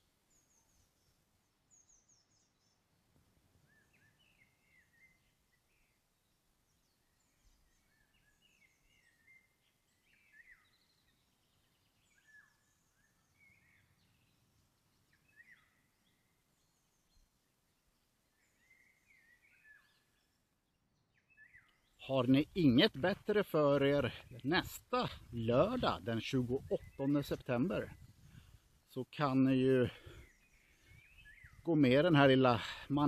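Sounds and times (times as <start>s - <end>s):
faint bird calls: 3.5s - 22.9s, 29.5s - 33.0s.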